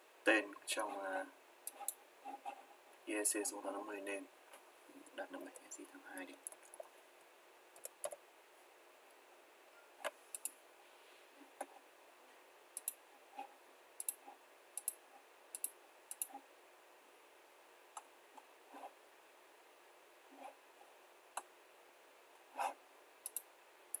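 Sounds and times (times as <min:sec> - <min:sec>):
faint room background: 0:00.0 - 0:24.0
keyboard and mouse clicks: 0:01.7 - 0:02.6, 0:05.1 - 0:06.9, 0:07.8 - 0:08.2, 0:10.0 - 0:10.6, 0:12.8 - 0:13.0, 0:14.0 - 0:16.4, 0:23.2 - 0:24.0.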